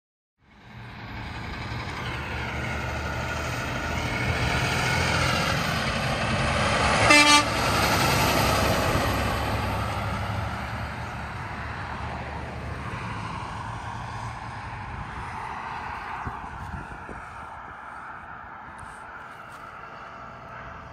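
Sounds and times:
truck passing by: 0.4 - 20.9
truck horn toot: 6.9 - 7.7.

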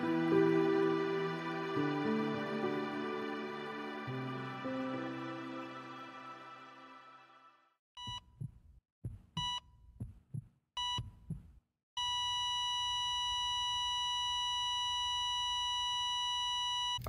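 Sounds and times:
heart monitor beeps: 8.0 - 10.1, 10.8 - 17.0
heartbeat thuds: 8.0 - 11.6.

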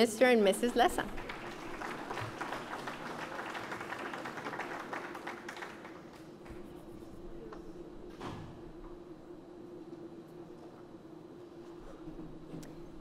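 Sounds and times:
steady low hum: 0.0 - 13.0
audience applauding: 0.6 - 6.4.

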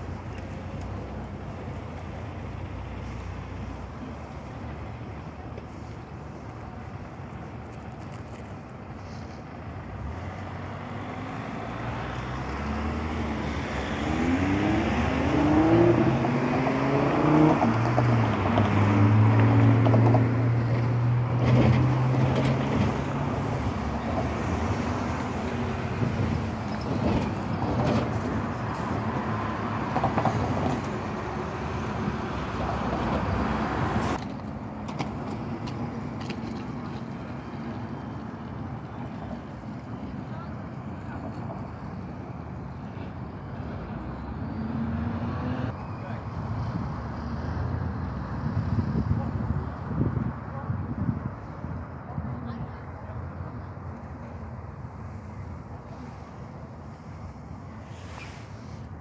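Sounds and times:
street noise: 0.0 - 59.0
vehicle motor passing: 9.8 - 34.2.

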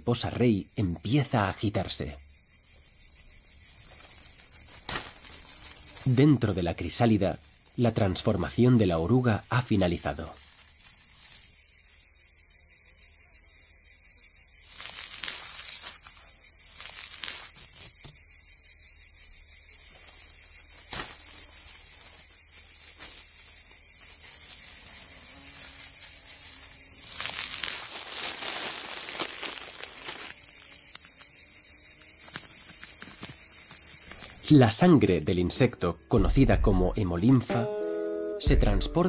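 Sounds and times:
chrysalis case crackling: 3.2 - 12.2, 14.2 - 34.6
steady hiss: 3.2 - 35.4.

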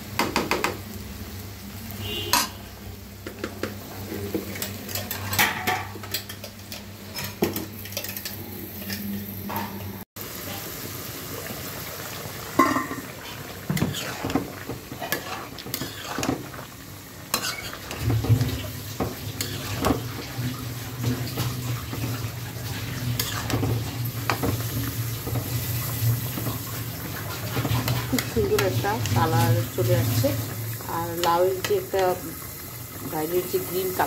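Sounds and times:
metal spatula scraping pan: 13.7 - 16.4, 17.3 - 25.4.

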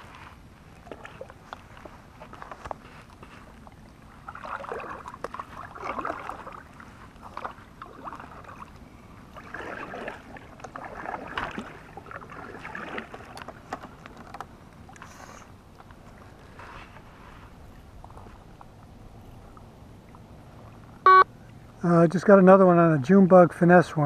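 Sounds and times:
kayak paddle splashing in water: 0.0 - 18.8.

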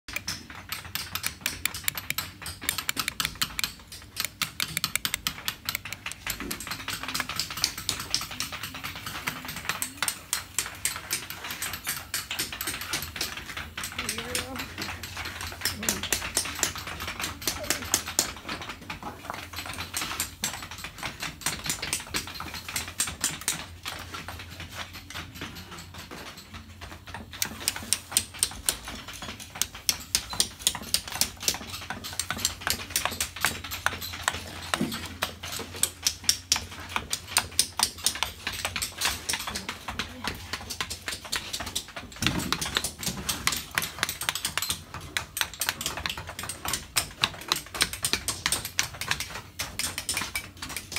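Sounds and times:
chisel tapping on stone: 0.1 - 18.8.

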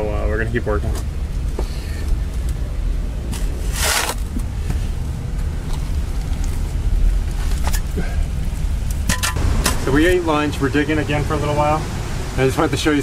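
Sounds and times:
shovel scraping into dirt: 3.3 - 4.2.

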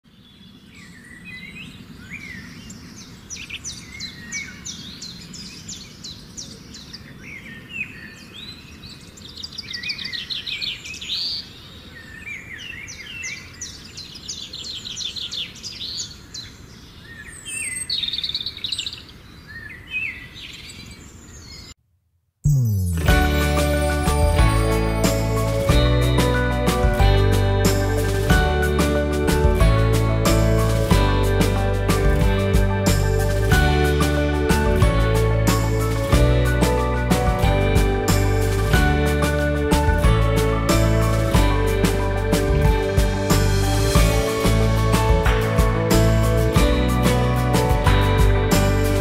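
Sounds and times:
birds chirping and trilling: 0.0 - 21.8
music: 22.5 - 49.0.

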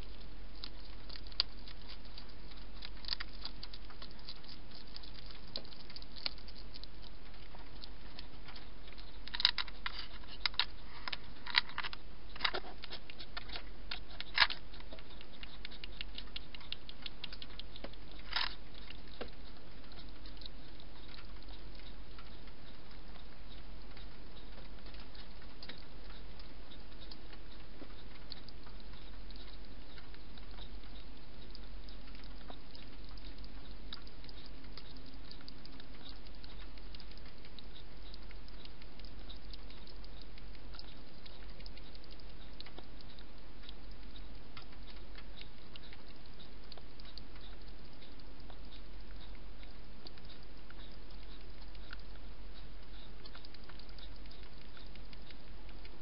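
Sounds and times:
hedgehog lapping water: 0.0 - 56.0.

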